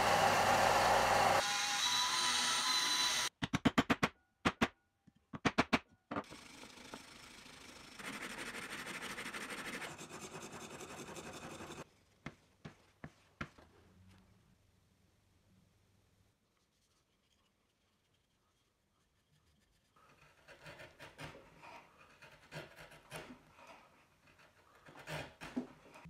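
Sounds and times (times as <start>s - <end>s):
disc sander motor running: 0.0s - 1.4s
chisel scraping on sandpaper: 8.0s - 11.9s, 16.6s - 26.0s.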